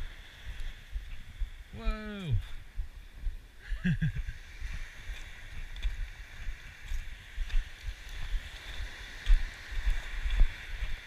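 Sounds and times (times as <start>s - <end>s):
small waves breaking: 0.0s - 11.0s
wind buffeting microphone: 0.0s - 11.0s
footsteps crunching on pebbles: 4.8s - 11.0s.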